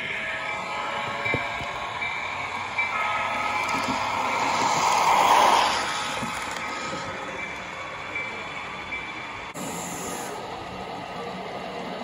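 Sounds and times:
metal wheels rolling on rail: 0.0s - 9.6s.

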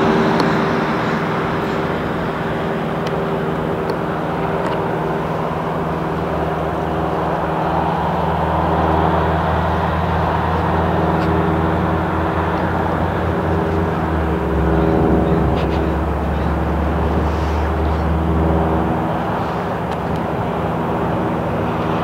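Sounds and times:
jet engines idling: 0.0s - 22.0s.

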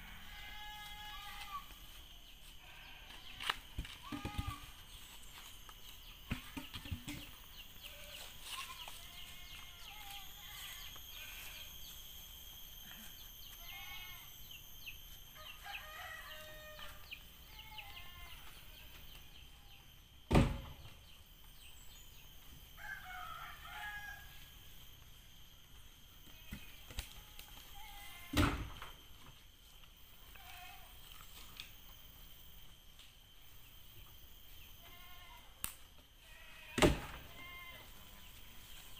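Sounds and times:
high insect hum: 0.0s - 38.9s
rooster crowing: 15.3s - 17.2s, 22.7s - 24.6s.

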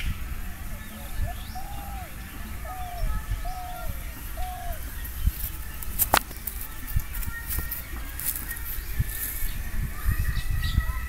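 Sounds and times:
bird whistling: 0.0s - 6.6s.

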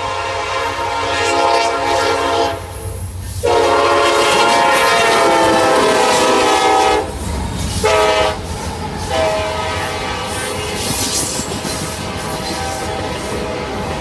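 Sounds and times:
locomotive horn blowing: 0.0s - 7.2s, 7.8s - 10.9s, 11.9s - 14.0s
diesel locomotives rumbling past: 0.0s - 14.0s.

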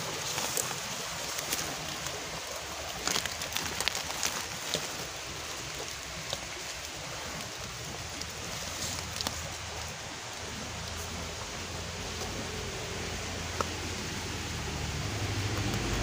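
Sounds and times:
dry leaves rustling and crackling: 0.0s - 16.0s
twigs snapping: 2.9s - 5.1s.

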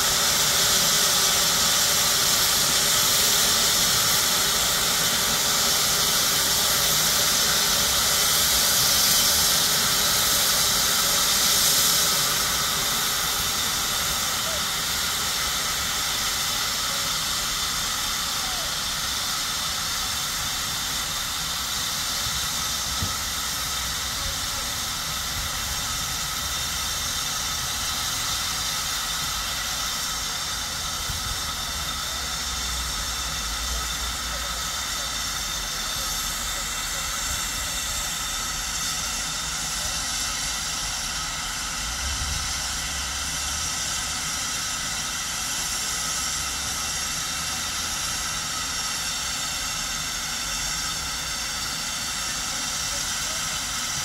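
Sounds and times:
steam hissing: 0.0s - 54.0s.

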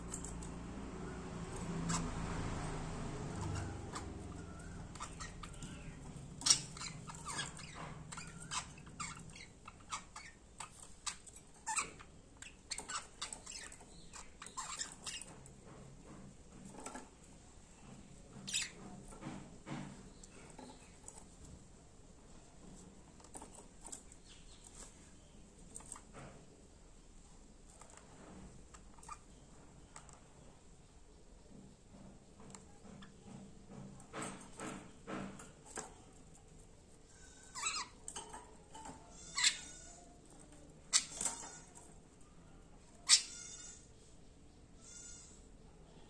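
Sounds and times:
budgerigars chirping and clicking: 0.0s - 21.6s, 22.2s - 26.3s, 27.8s - 30.3s, 32.4s - 43.9s.

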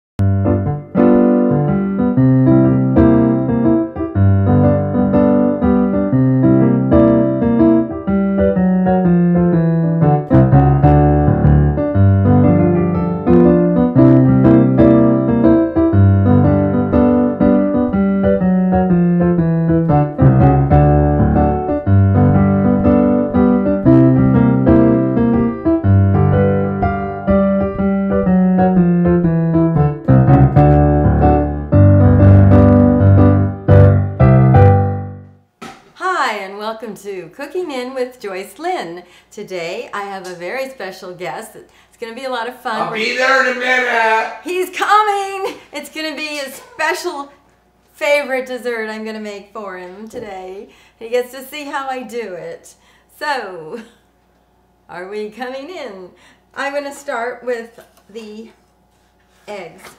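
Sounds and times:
piano theme music: 0.2s - 35.4s.

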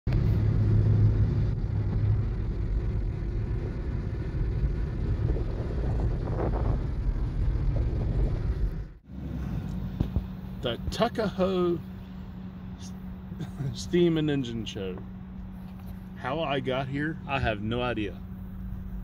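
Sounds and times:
car road and engine rumble: 0.0s - 19.0s
wind noise: 0.1s - 10.4s
low hum: 0.1s - 19.0s.

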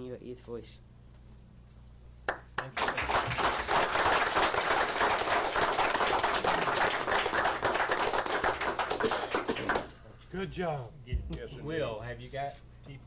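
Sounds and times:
group applause: 2.3s - 10.0s.

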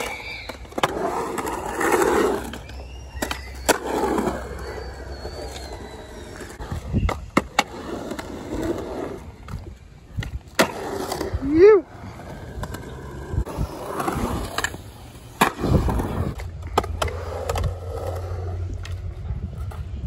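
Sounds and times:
skateboard wheels rolling on concrete: 0.0s - 20.0s
skateboard clacking on ground: 6.6s - 20.0s.

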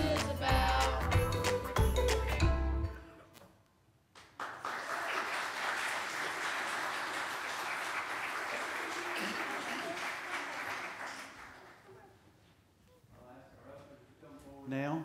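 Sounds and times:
congregation applauding: 4.2s - 12.2s.

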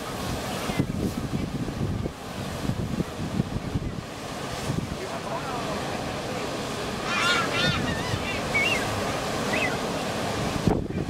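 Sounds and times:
surf breaking on rocks: 0.0s - 11.0s
wind: 0.0s - 11.0s
bird calls: 7.0s - 9.9s.

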